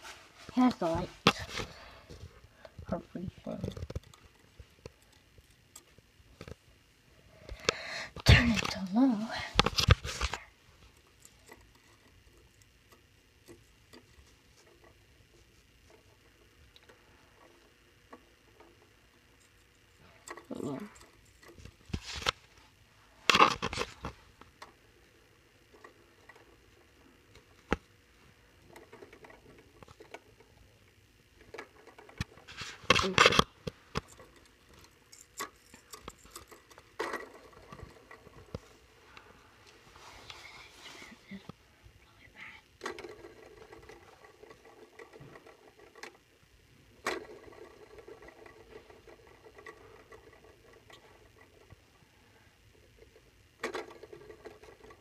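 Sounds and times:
rustling scrapes: 0.0 - 2.3, 37.4 - 41.4
toy fan motor ticking rattle: 2.6 - 6.7, 8.5 - 21.9, 23.4 - 38.6, 42.4 - 52.0, 52.6 - 55.0.

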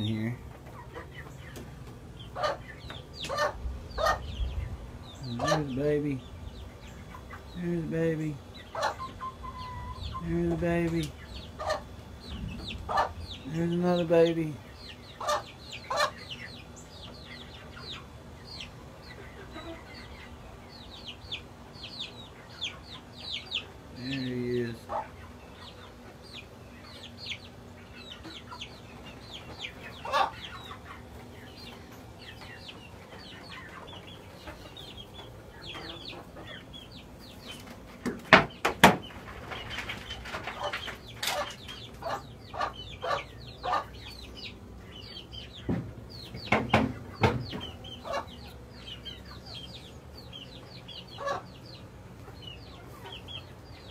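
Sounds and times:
baby chicks peeping: 0.0 - 53.9
loud sharp knocks: 38.0 - 39.1, 45.6 - 47.7.

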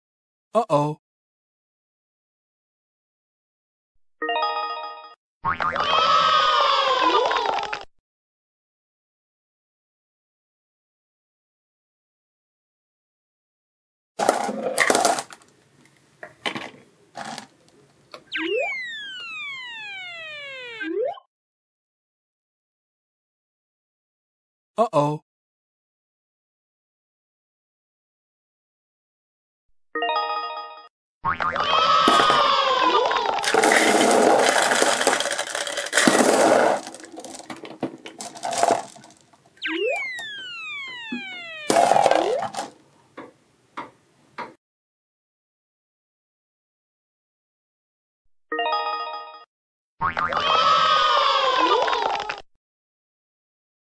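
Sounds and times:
plastic balls clattering: 14.2 - 15.5, 16.5 - 17.5, 33.2 - 39.6, 41.3 - 42.8
falling cartoon whistle: 18.3 - 21.1, 39.6 - 42.0
quick upward chirp: 18.3 - 21.2, 39.6 - 42.4
short noisy cartoon bursts: 39.6 - 42.4.

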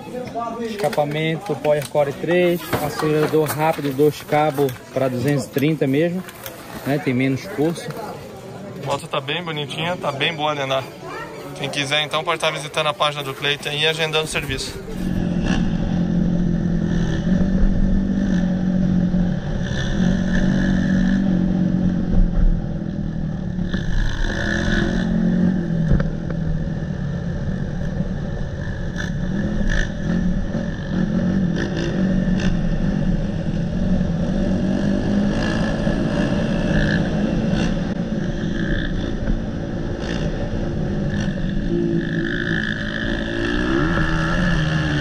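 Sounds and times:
dirt bike engine revving: 13.3 - 45.0.

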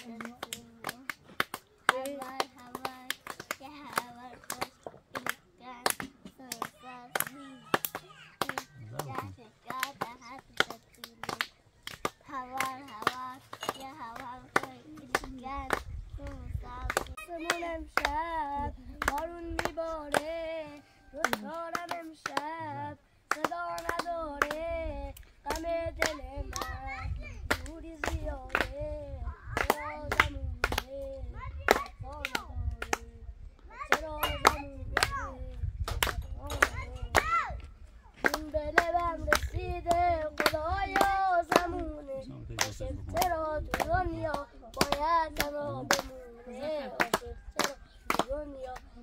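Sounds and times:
child singing: 0.0 - 1.2, 1.8 - 49.0
hand claps keeping time: 0.0 - 20.4, 21.2 - 24.7, 25.5 - 28.8, 29.6 - 31.1, 33.9 - 48.9
high voice singing: 6.4 - 11.4, 16.2 - 23.0, 39.6 - 47.7.

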